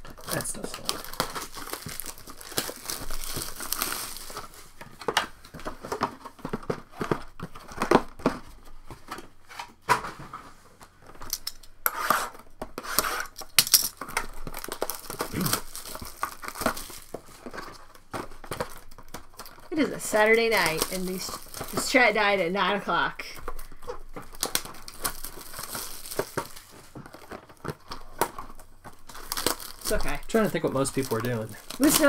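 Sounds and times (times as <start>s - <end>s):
cellophane crinkling and crackling: 0.0s - 11.7s, 12.4s - 32.0s
boxes clicking and tapping: 4.8s - 10.2s, 12.5s - 32.0s.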